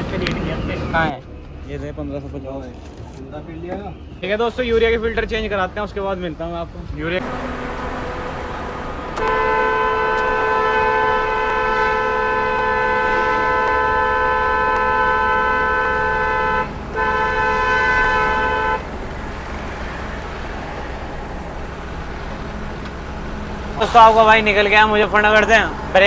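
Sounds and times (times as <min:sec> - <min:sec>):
engine and road rumble: 0:00.0 - 0:26.0
truck horn blast: 0:07.2 - 0:19.0.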